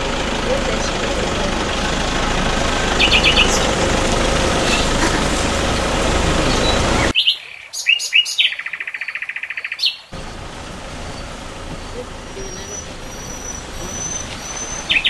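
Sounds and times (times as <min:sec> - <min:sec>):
vehicle engine running: 0:00.0 - 0:07.1, 0:10.1 - 0:15.0
birds chirping and singing: 0:02.6 - 0:15.0
bird whistling and trilling: 0:03.0 - 0:03.7, 0:06.5 - 0:10.0, 0:12.4 - 0:15.0.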